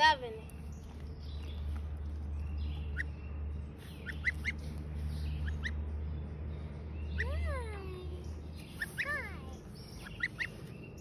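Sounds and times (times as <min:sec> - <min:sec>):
gosling peeping: 0:02.7 - 0:03.2, 0:03.8 - 0:05.8, 0:08.4 - 0:11.0.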